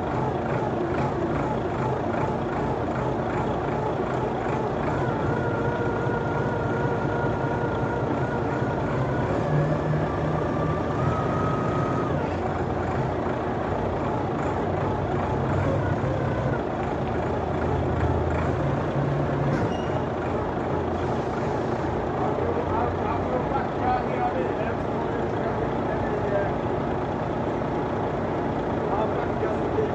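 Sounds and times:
diesel engine under load: 0.0s - 29.9s.

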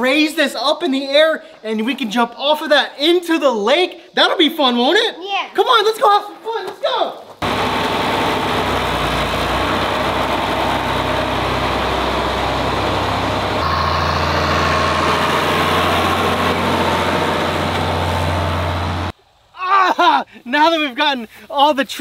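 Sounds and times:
tractor engine running: 7.4s - 19.1s.

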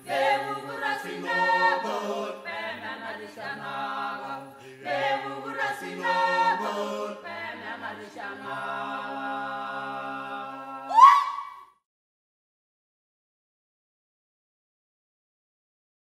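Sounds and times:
a cappella choir singing: 0.0s - 11.0s.

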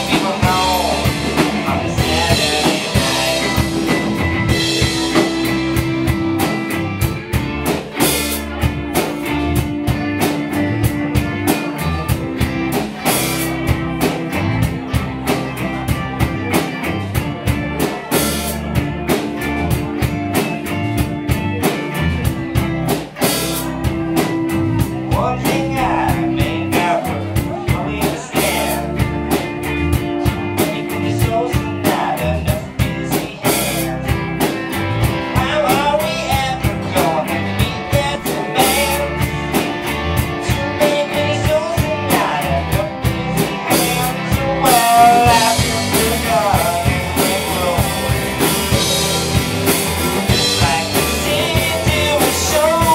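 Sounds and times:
bass: 0.0s - 52.9s
drum kit beat: 0.0s - 52.9s
electric guitar: 0.0s - 52.9s.

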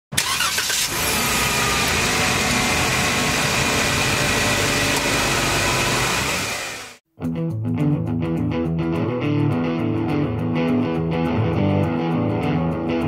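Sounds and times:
vehicle engine running: 0.3s - 7.0s.

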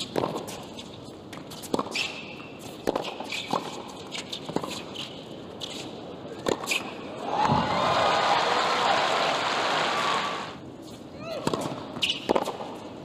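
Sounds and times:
shoes squeaking on court: 0.0s - 6.0s, 10.8s - 12.9s.

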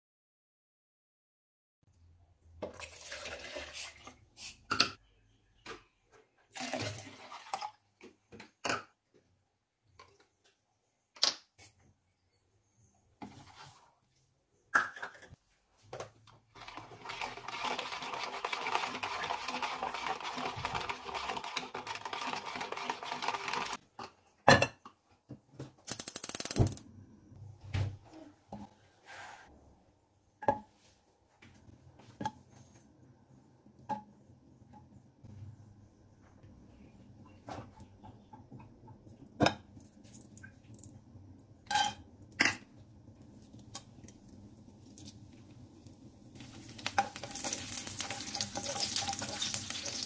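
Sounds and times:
utensil stirring in plastic jug: 16.6s - 23.8s.

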